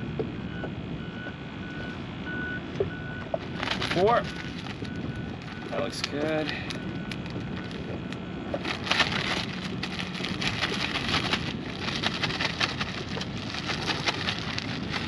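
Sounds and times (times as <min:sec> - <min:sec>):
plastic bag crinkling: 0:03.5 - 0:08.0, 0:08.6 - 0:15.0.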